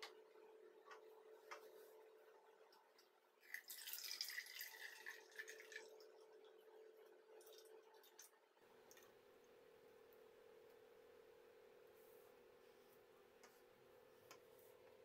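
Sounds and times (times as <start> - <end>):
liquid trickling into a cup: 3.4 - 6.7, 7.4 - 8.4.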